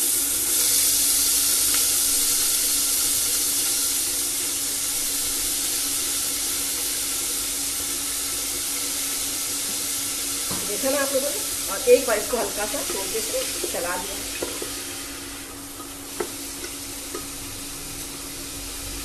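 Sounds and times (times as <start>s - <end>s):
lentils sizzling in hot oil: 0.0s - 19.0s.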